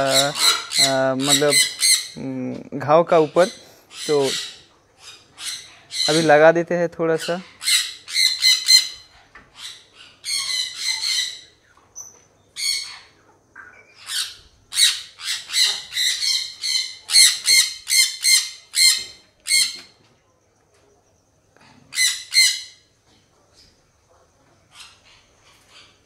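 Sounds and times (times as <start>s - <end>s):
parakeet squawking harshly: 0.0s - 2.2s, 3.9s - 6.3s, 7.3s - 9.0s, 14.0s - 19.8s, 21.9s - 22.8s.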